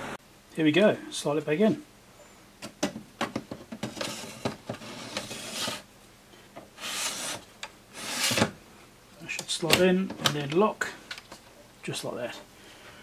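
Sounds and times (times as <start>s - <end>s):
metal scraping on metal: 3.9s - 5.9s.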